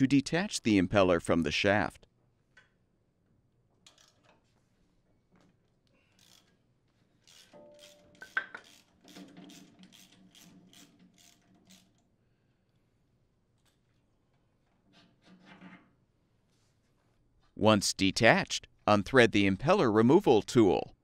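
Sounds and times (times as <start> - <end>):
socket ratchet rasping: 6.1 - 6.6, 7.2 - 12.0.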